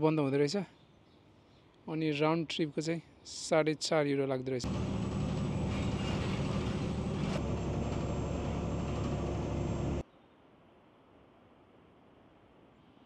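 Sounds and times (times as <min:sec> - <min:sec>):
bus drive hum and road noise: 0:04.6 - 0:10.0.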